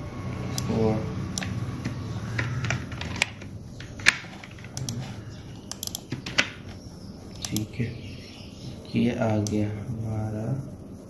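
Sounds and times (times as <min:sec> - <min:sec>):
mouse and keyboard clicks: 0:01.4 - 0:07.7.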